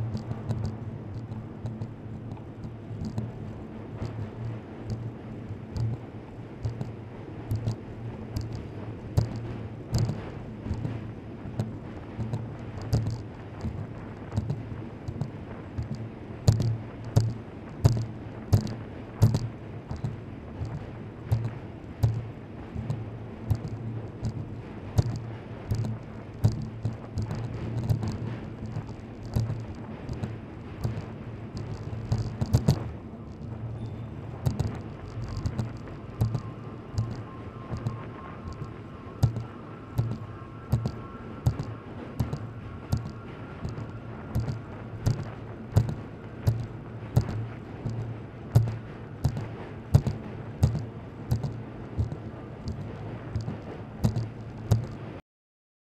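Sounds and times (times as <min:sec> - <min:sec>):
bicycle ride noise: 0:00.0 - 0:55.2
wind and road rumble: 0:00.0 - 0:55.2
bicycle clicking: 0:25.0 - 0:32.8, 0:53.4 - 0:54.8.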